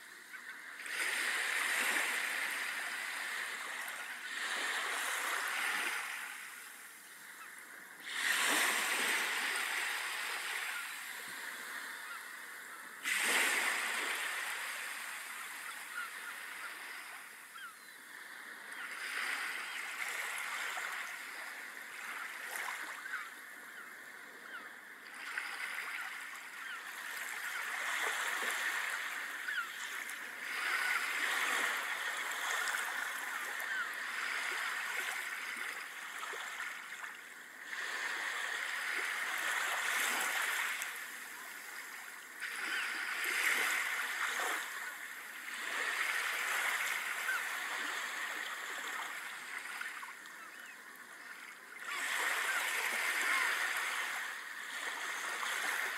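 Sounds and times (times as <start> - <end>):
waves washing up a beach: 0.0 - 55.9.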